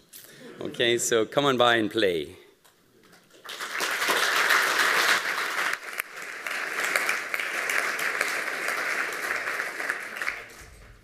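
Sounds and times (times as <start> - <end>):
audience applauding: 3.3 - 10.8.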